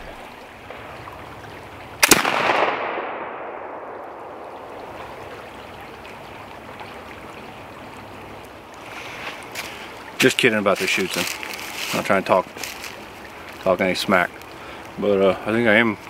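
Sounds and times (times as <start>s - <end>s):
creek running: 0.0s - 16.0s
rifle shot with long echo: 2.0s - 4.6s.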